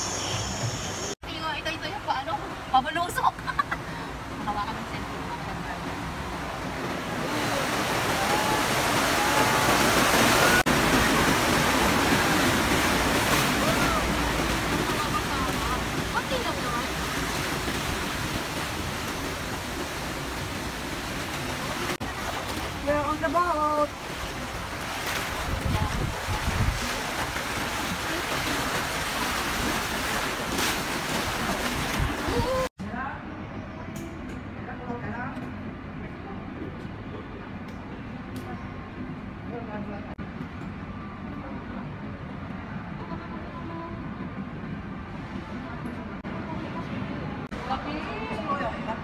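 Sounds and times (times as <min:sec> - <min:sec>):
rushing churning water: 0:00.0 - 0:32.8
wind buffeting microphone: 0:23.9 - 0:30.0.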